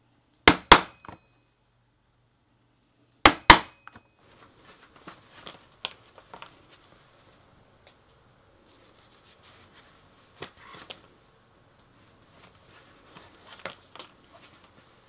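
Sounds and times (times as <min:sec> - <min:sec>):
mallet striking leather punch: 0:00.5 - 0:01.2, 0:03.3 - 0:04.0
leather handling noises: 0:08.6 - 0:11.2, 0:11.8 - 0:15.0.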